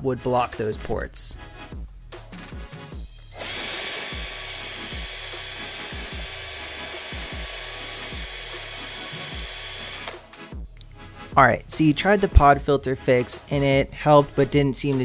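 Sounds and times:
background music with beat: 0:00.0 - 0:03.4, 0:04.0 - 0:15.0
drill sanding with high whine: 0:03.4 - 0:10.2.

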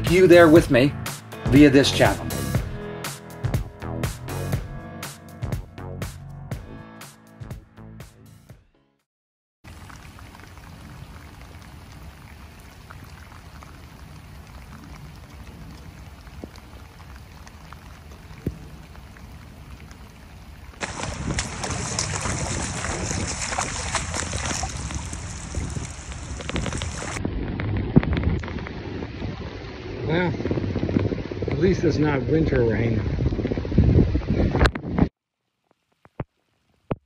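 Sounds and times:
rain falling on water: 0:09.7 - 0:31.6, 0:35.4 - 0:37.0.

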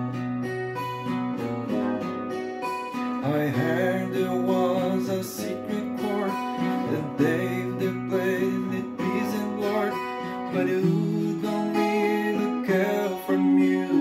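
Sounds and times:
acoustic guitar playing: 0:00.0 - 0:14.0
man singing: 0:03.2 - 0:14.0.

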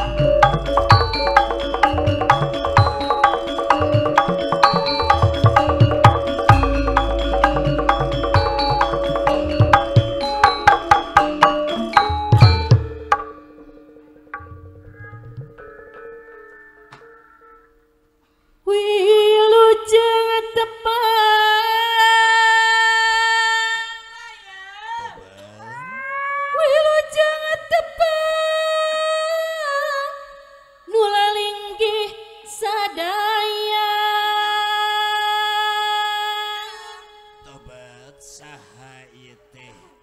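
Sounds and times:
woman singing into a microphone: 0:18.7 - 0:24.9, 0:26.1 - 0:37.4.

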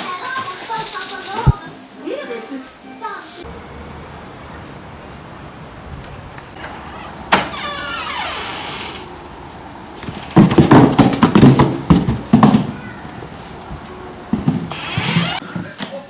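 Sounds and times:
door hinge squeak: 0:06.6 - 0:09.1, 0:14.7 - 0:15.4
cardboard box knocks and scrapes: 0:10.0 - 0:12.7.

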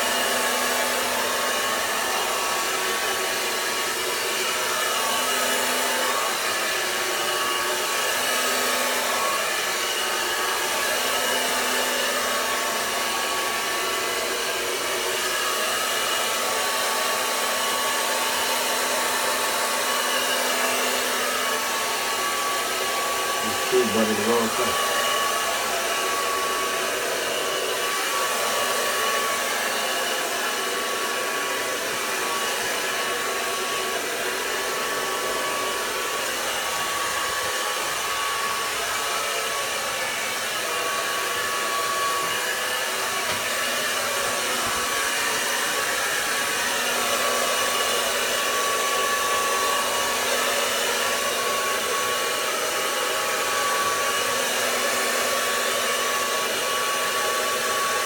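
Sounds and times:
hair dryer blowing: 0:00.0 - 0:58.0.

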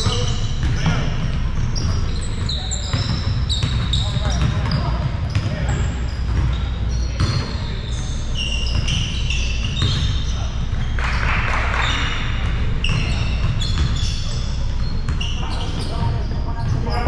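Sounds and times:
basketball bouncing: 0:00.0 - 0:07.6, 0:08.7 - 0:11.3, 0:12.2 - 0:14.0
sneakers squeaking: 0:00.0 - 0:17.0.

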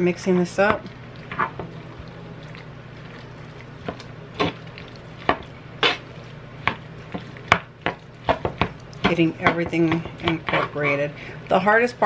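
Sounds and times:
steady low hum: 0:00.0 - 0:12.0
spoon scraping a plastic bowl: 0:08.4 - 0:11.1.

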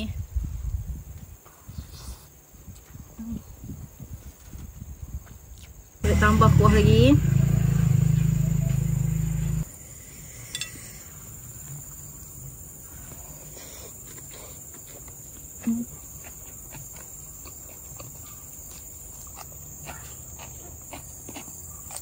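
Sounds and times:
insects trilling: 0:05.8 - 0:22.0
short low hum: 0:06.0 - 0:09.6
person eating and chewing: 0:14.0 - 0:22.0.

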